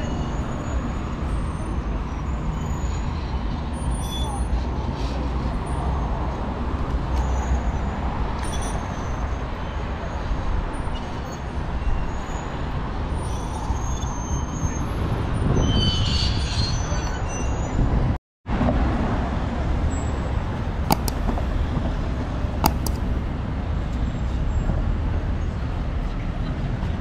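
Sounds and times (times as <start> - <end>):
brief high squeal: 3.9 - 4.5
traffic rumble: 18.5 - 27.0
sharp clicks: 20.8 - 21.5, 22.6 - 23.1.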